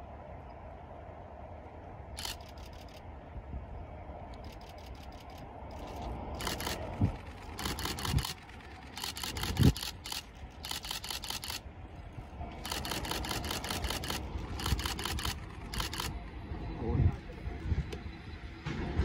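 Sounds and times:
steady hum: 0.0 - 19.0
camera shutter bursts: 2.2 - 3.0, 4.4 - 11.6, 12.6 - 16.2.

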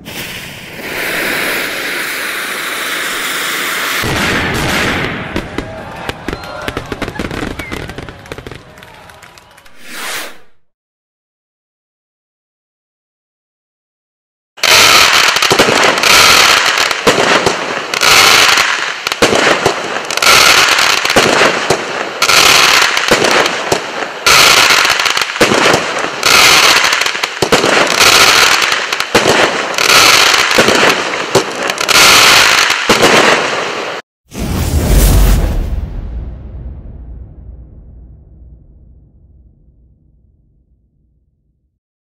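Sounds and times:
fireworks blasts with crackling: 0.0 - 10.0, 14.6 - 34.0.

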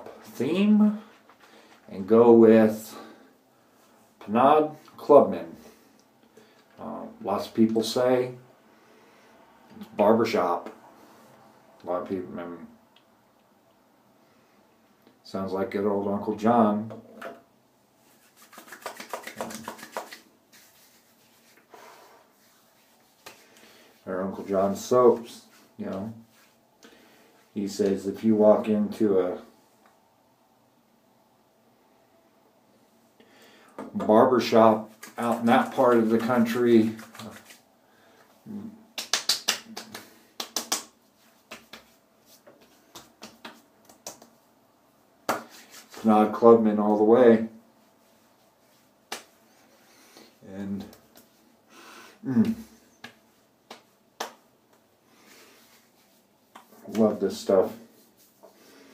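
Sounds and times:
hands rubbing scalp: 18.0 - 26.7, 34.5 - 37.7, 38.9 - 44.5, 45.2 - 46.3, 47.8 - 51.5, 52.9 - 58.9.

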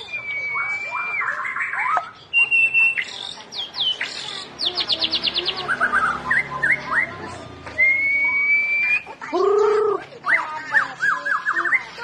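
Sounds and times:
bird singing clear whistles: 0.0 - 4.1, 4.8 - 7.1, 7.8 - 9.1.

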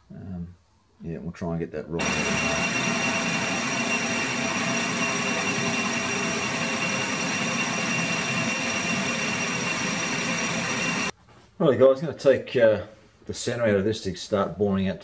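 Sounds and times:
metal lathe whine: 2.0 - 11.1
tool shearing metal chips: 2.0 - 11.1.

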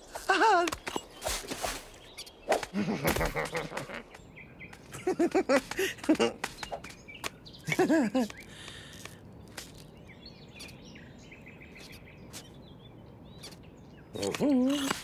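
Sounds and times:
high bird chirps: 0.7 - 15.0.

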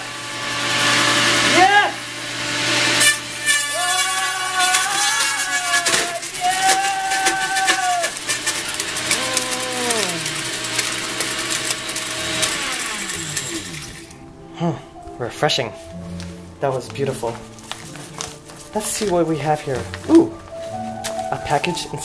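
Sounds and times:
blender motor whine: 0.0 - 14.2
paper pieces clattering in jar: 3.0 - 14.2.

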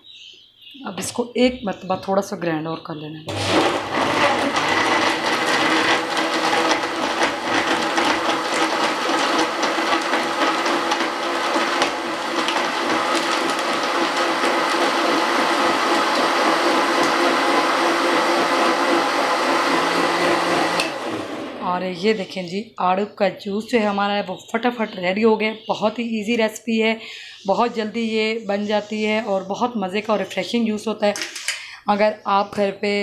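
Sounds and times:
blender motor running: 3.3 - 21.7.

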